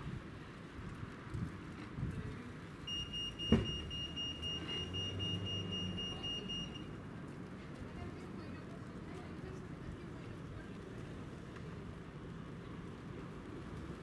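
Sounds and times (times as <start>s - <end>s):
high electronic alarm tone: 2.9s - 6.8s.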